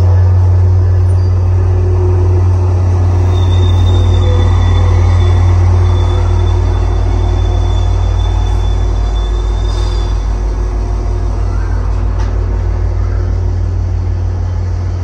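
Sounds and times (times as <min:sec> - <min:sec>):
high steady whine: 0:00.0 - 0:15.0
train rumbling past: 0:00.0 - 0:15.0.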